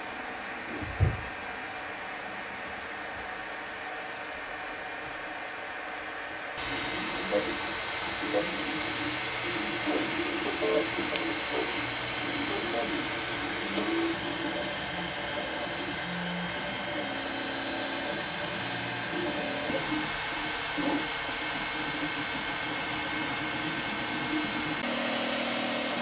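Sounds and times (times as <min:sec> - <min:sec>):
cooling fans whirring: 0:00.0 - 0:26.0
stepper motors humming tones: 0:06.6 - 0:26.0.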